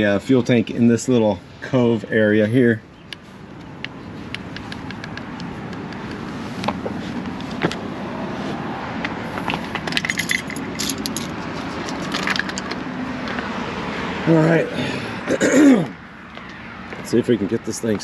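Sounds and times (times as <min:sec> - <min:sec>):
metal hand tools clinking: 0:09.8 - 0:12.8.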